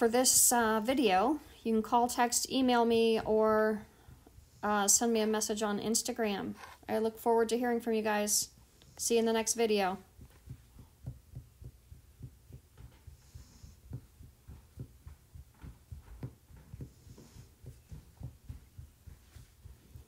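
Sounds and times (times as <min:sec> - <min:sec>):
microphone handling thumps: 0:10.0 - 0:20.0.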